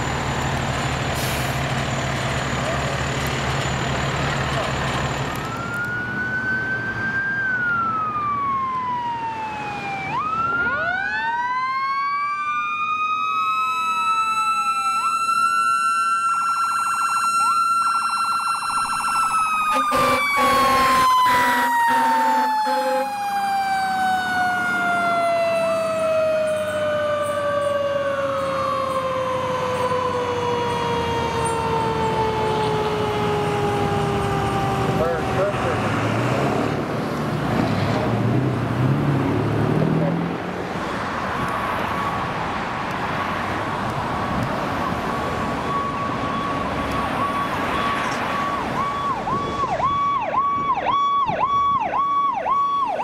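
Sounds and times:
fire truck siren wailing: 0:00.0 - 0:37.5, 0:38.1 - 0:53.0
air horn blasts: 0:19.7 - 0:23.1.

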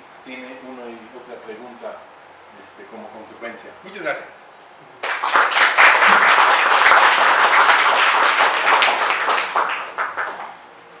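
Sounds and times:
audience applauding: 0:05.0 - 0:10.6.

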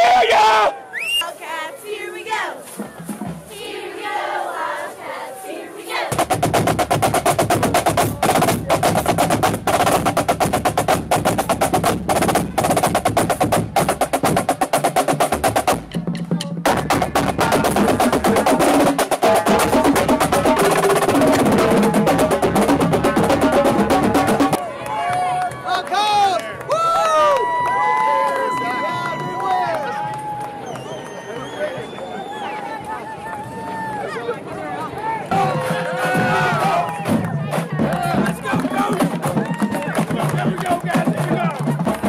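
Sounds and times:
people shouting and cheering: 0:00.0 - 0:06.2, 0:16.3 - 0:42.0
drumline playing snare and bass drums: 0:02.8 - 0:03.6, 0:06.1 - 0:24.6, 0:35.3 - 0:42.0.

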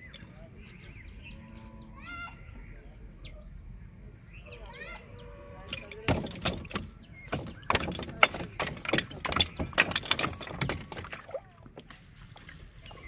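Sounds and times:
fish flapping on wooden planks: 0:05.7 - 0:13.0.

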